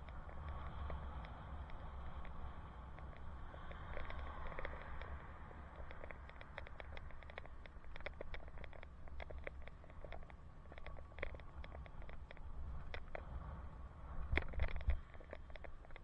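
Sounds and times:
small clicks and rattles: 0.0 - 16.0
wind buffeting microphone: 10.8 - 16.0.

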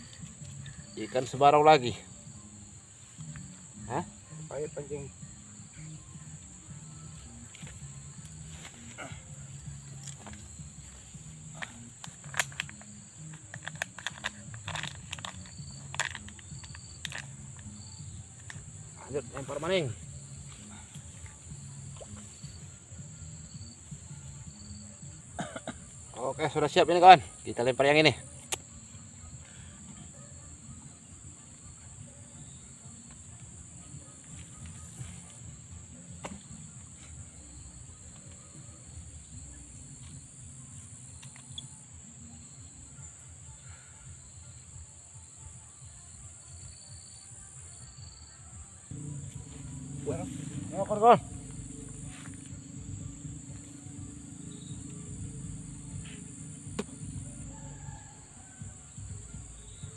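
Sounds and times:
high-pitched insect drone: 0.0 - 59.9
low rumble: 48.9 - 57.7
faint low tones changing pitch: 48.9 - 58.2.

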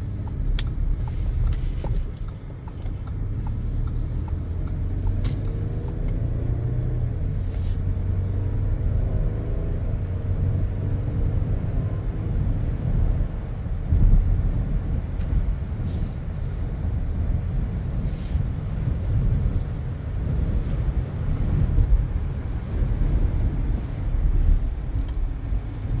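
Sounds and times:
car engine revving up: 0.0 - 13.2
road and tyre rumble: 0.0 - 26.0.

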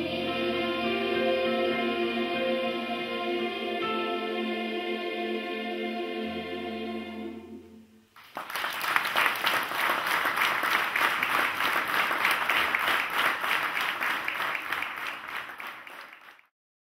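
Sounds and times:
choir holding a chord: 0.0 - 8.0
audience applause: 8.2 - 16.5.

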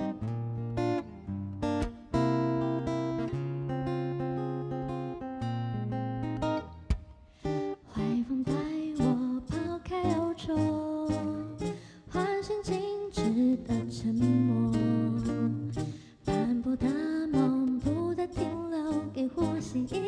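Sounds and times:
acoustic guitars: 0.0 - 20.0
woman singing pop ballad: 7.8 - 20.0.

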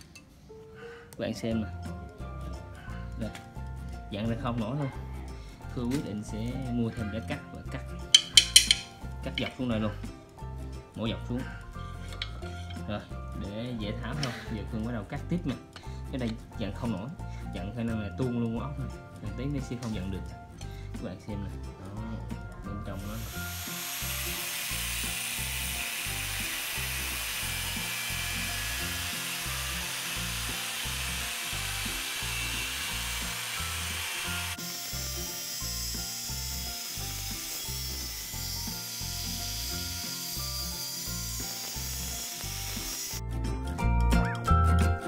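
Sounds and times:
background music: 0.0 - 45.0
angle grinder cutting steel: 23.0 - 43.2.

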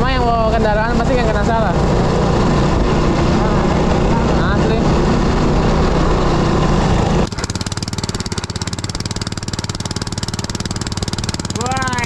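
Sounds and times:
wind noise: 0.0 - 7.3
boat engine puttering: 0.0 - 12.0
scooter engine running: 0.0 - 12.0.

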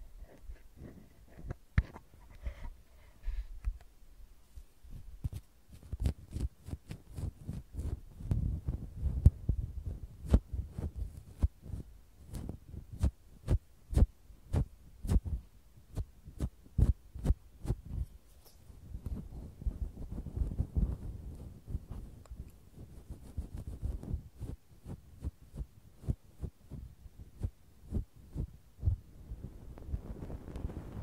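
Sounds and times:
feather puff brushing microphone: 4.9 - 29.0.

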